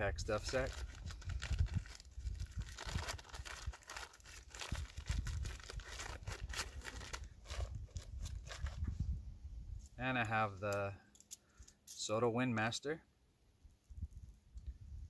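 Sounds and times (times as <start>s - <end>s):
stuff sack crinkling and rustling: 0.2s - 8.9s.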